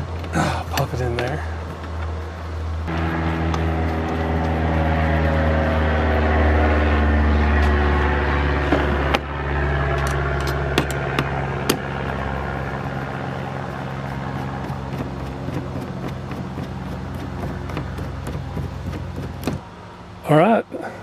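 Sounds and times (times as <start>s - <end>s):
motor humming: 1.7s - 19.6s.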